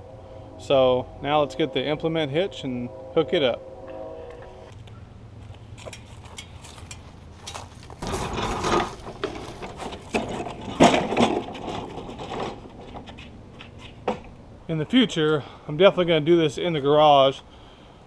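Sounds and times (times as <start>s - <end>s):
metal clanks and knocks: 5.8s - 14.3s
dolly rolling scrape on concrete: 7.5s - 14.1s.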